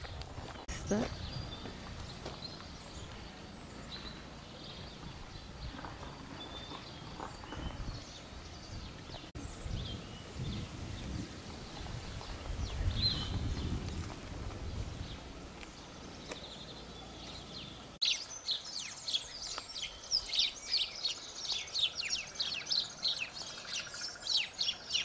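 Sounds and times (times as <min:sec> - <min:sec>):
footsteps on dirt path: 0:00.0 - 0:09.3
small birds chirping: 0:00.0 - 0:25.0.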